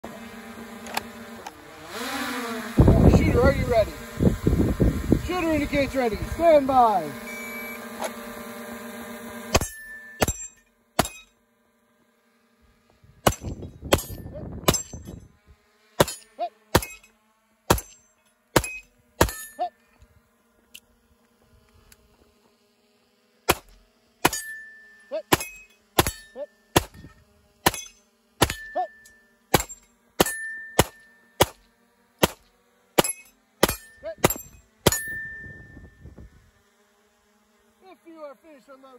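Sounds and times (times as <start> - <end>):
shot timer start tone: 7.1 - 7.9, 34.9 - 36.2
struck steel ringing: 9.6 - 11.3, 13.3 - 15.2, 16.0 - 17.1, 17.7 - 19.7, 24.2 - 31.6, 33.0 - 36.0
pistol shots: 25.3 - 26.2, 26.8 - 27.0, 29.5 - 31.6, 32.2 - 32.4, 33.0 - 35.0.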